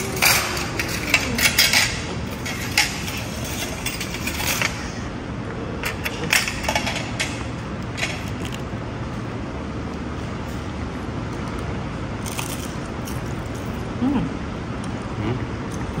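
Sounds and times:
cutlery and crockery clinking: 0.0s - 4.9s, 5.8s - 7.4s
restaurant background hum: 0.0s - 16.0s.

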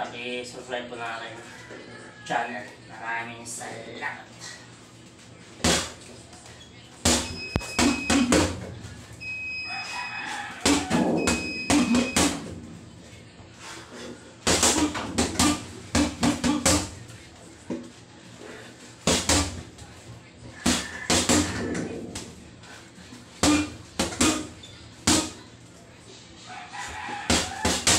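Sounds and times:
rooster crowing: 1.3s - 2.6s, 9.4s - 12.6s, 20.5s - 21.8s, 26.4s - 27.9s
boxing gloves punching heavy bag: 7.1s - 8.6s, 10.6s - 12.5s, 14.4s - 17.0s, 19.0s - 19.7s, 23.4s - 25.4s.

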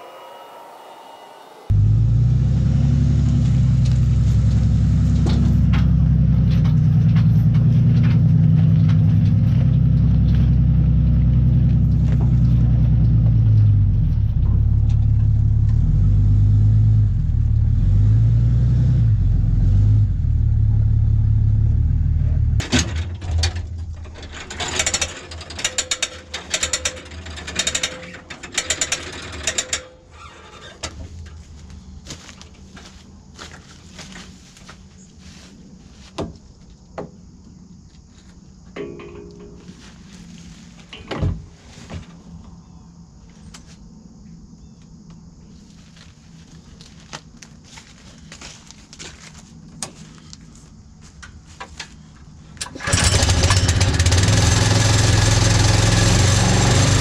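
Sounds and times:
diesel tractor engine running: 0.0s - 34.3s, 46.0s - 57.0s
irregular clicks and rustles: 22.6s - 36.9s, 44.8s - 52.8s.

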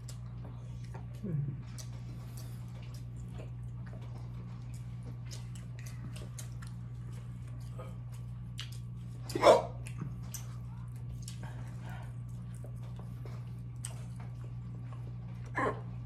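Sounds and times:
chewing mouth clicks and smacks: 0.0s - 15.5s
steady low hum: 0.0s - 16.0s.

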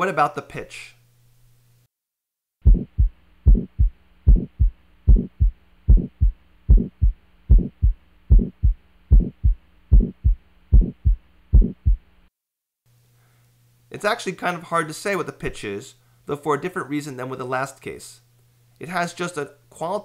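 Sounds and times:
harsh heart murmur: 2.6s - 12.1s
heart beating: 2.6s - 12.1s
faint steady hum: 2.7s - 12.3s, 12.9s - 20.0s.

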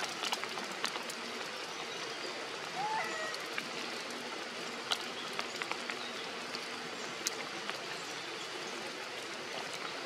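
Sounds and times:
drops ticking on leaves: 0.0s - 1.6s, 2.6s - 8.0s
rain falling on foliage: 0.0s - 10.0s.

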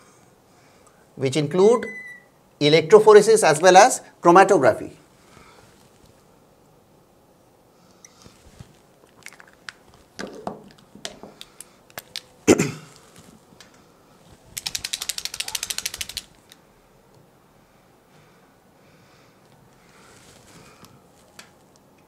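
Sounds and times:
markers clicking and tapping: 14.6s - 16.6s.

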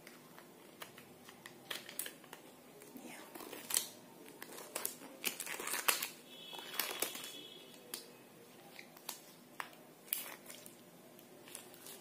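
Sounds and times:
latex glove crinkling: 3.3s - 8.0s.

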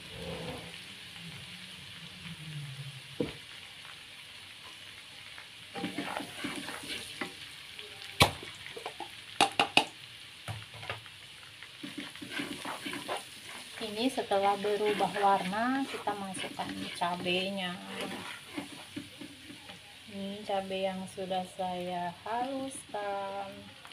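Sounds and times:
garlic sizzling in hot oil: 0.0s - 23.9s
spatula scraping and knocking pan: 5.8s - 7.4s, 11.8s - 19.8s.

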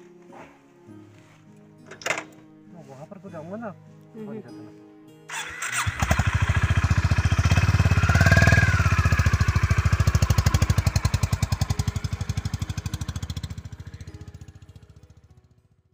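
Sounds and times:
motorcycle engine pulling away: 5.3s - 15.8s.

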